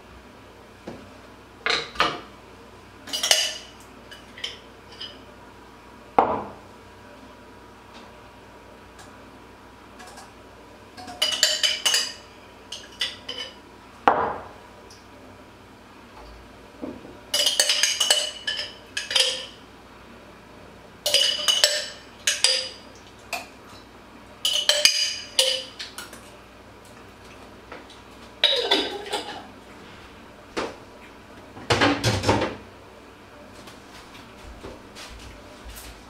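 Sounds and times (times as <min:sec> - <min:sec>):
metal spoon clinking dishes: 0:03.1 - 0:03.7, 0:11.0 - 0:13.6, 0:17.4 - 0:19.6, 0:21.1 - 0:22.8, 0:24.4 - 0:25.7
dishes clattering: 0:03.1 - 0:05.2, 0:11.0 - 0:12.2, 0:17.4 - 0:19.6, 0:21.1 - 0:22.8, 0:24.4 - 0:25.8, 0:28.4 - 0:29.5.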